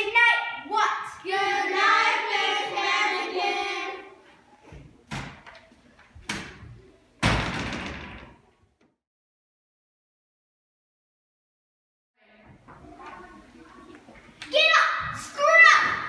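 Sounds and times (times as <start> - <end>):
wooden door clattering shut: 7.2 - 8.4.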